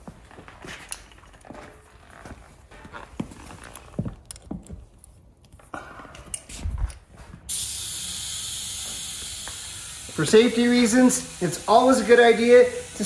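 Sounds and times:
compressed air hissing into tire: 7.5s - 13.0s.

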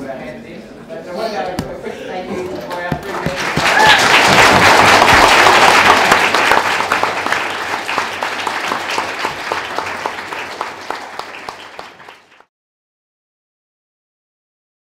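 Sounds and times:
audience applauding: 3.0s - 12.5s.

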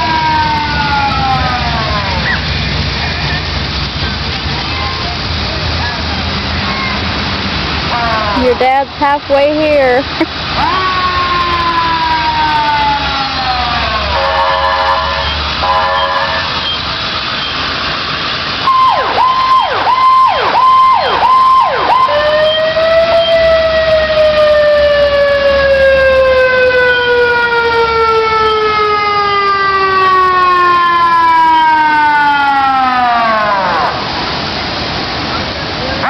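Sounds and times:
emergency vehicle siren: 0.0s - 3.4s, 7.9s - 9.8s, 10.4s - 34.6s.

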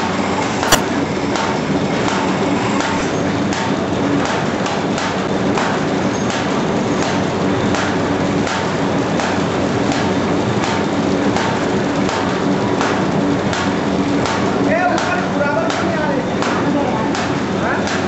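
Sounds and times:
sharp click: 0.6s - 0.9s.

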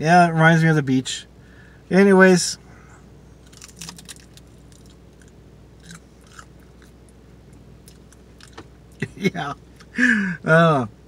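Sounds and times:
crisp seaweed crackling when chewed: 3.4s - 6.9s.

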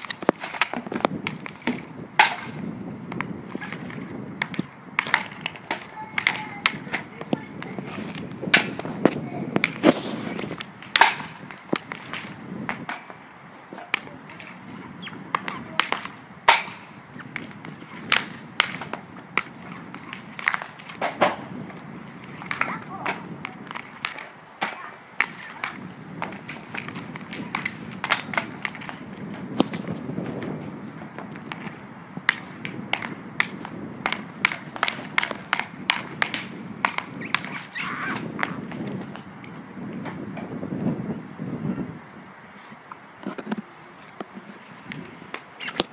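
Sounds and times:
hockey stick slapping pucks: 0.0s - 40.2s, 43.2s - 45.9s
short scrape on asphalt: 7.8s - 13.1s, 36.0s - 39.0s.

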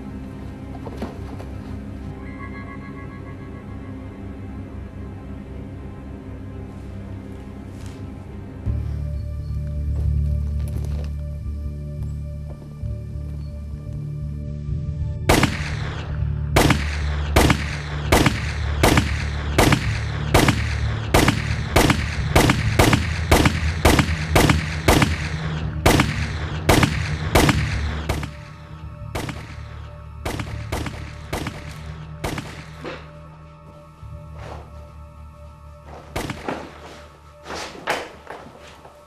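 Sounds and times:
low music drone: 0.0s - 39.0s
gunshots with ringing tail: 15.3s - 33.0s, 36.1s - 37.0s.

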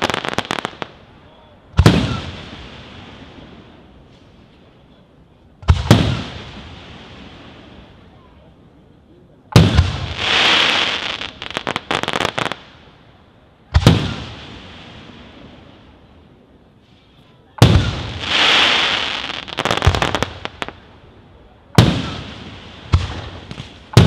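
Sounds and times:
firework crackles: 0.0s - 24.0s
firework bangs echoing: 1.8s - 3.8s, 5.6s - 7.8s, 9.5s - 12.8s, 13.7s - 15.7s, 17.6s - 20.8s, 21.7s - 24.0s
firework hiss: 9.6s - 16.0s, 16.8s - 21.0s.

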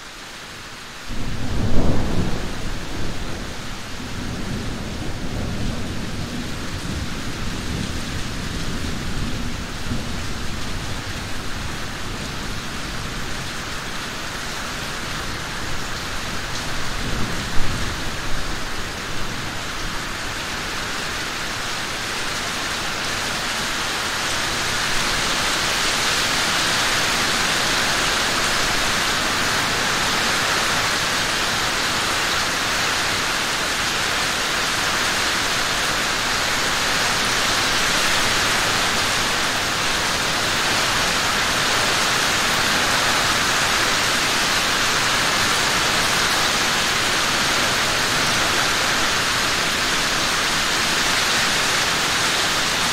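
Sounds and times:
heavy rain on trees: 0.0s - 52.9s
sharp rain hits: 0.0s - 52.9s
distant thunder rumble: 1.1s - 10.5s.

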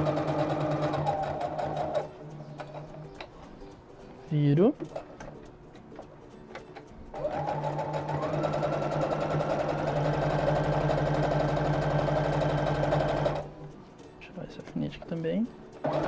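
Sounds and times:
electric sewing machine stitching: 0.0s - 2.1s, 7.2s - 13.5s.

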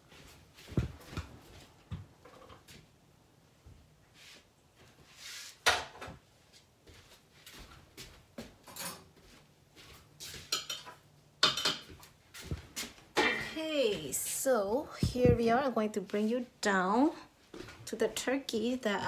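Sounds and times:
dishes and utensils clinking: 8.7s - 9.1s, 10.5s - 12.0s.

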